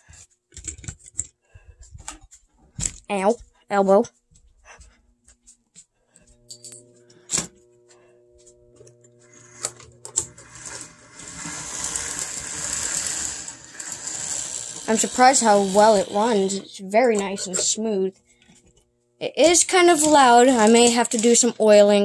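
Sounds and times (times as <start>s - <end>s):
motor and gears whirring: 6.3s - 18.8s
model train low hum: 10.4s - 16.6s.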